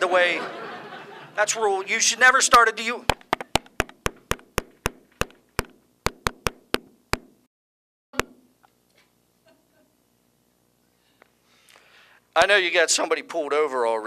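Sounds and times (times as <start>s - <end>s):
knuckles rapping on microphone: 3.0s - 7.4s.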